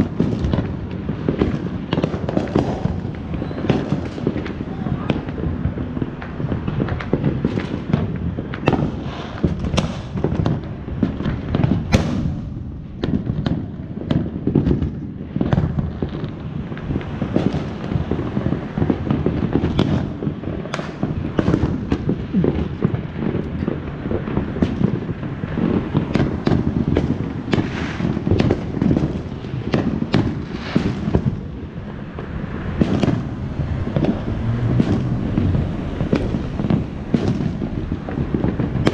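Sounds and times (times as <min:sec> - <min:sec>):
fireworks popping and banging: 0:00.0 - 0:38.9
low rumble: 0:31.1 - 0:38.9.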